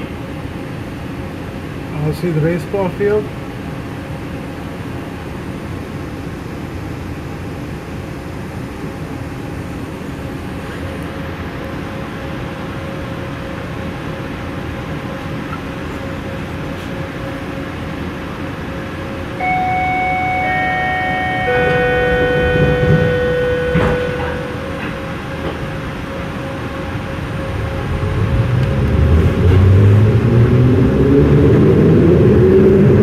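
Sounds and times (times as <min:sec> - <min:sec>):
train car running noise: 0:00.0 - 0:33.0
multi-note tone: 0:19.4 - 0:25.0.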